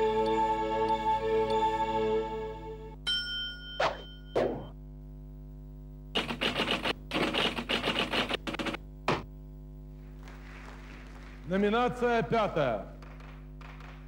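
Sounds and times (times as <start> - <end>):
short ringing tone: 3.0 - 4.8
fast typewriter typing: 6.2 - 8.8.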